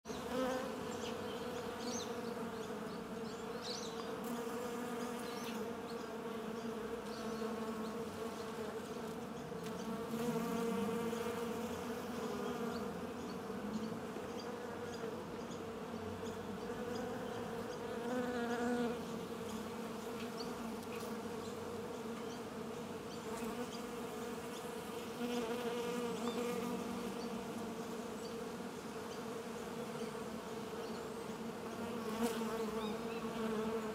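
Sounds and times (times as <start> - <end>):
honeybees buzzing: 0.1 - 33.9.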